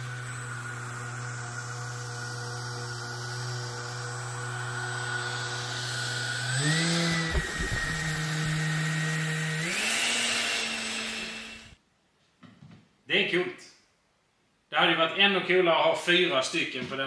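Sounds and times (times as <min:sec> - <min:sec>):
airflow rumbling on microphone: 0:07.2 - 0:08.8.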